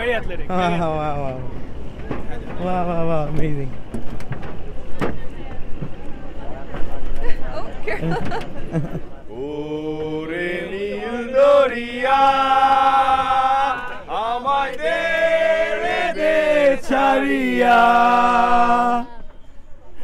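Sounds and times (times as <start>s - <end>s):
man singing chant-like song: 9.3s - 19.1s.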